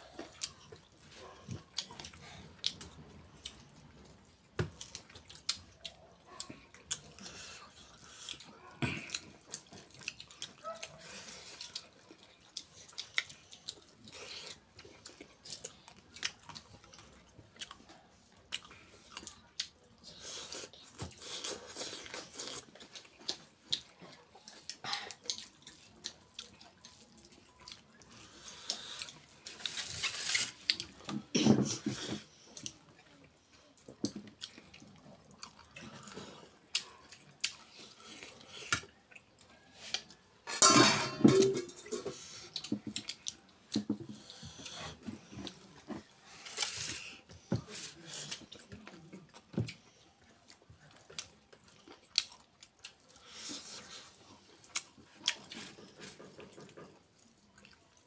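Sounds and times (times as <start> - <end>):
person chewing and smacking: 0.0 - 40.3, 41.4 - 58.0.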